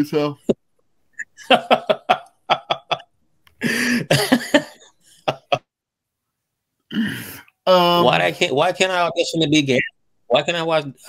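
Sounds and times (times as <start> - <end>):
man coughing: 3.6 - 4.8
man speaking: 7.7 - 11.0.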